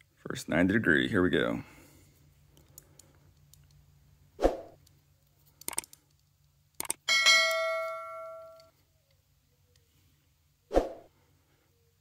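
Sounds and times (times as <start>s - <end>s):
short swoosh: 4.4s - 4.8s, 10.7s - 11.1s
mouse clicks: 5.6s - 7.0s
bell ding: 7.1s - 8.7s.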